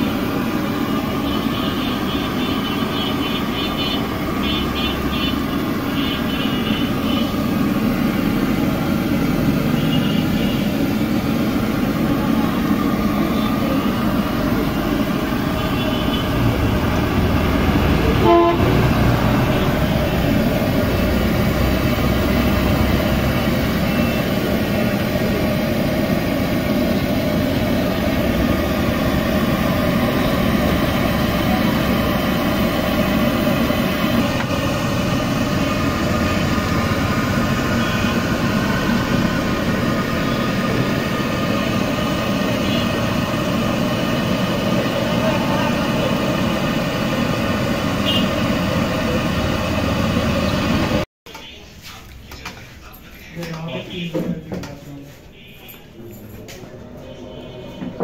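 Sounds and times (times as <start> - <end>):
traffic din: 0.0 - 58.0
car horns tooting: 1.1 - 7.5, 9.6 - 10.8, 15.4 - 17.0, 17.9 - 20.3, 37.5 - 39.0, 48.0 - 48.5, 53.6 - 54.5, 55.2 - 56.0, 57.0 - 58.0.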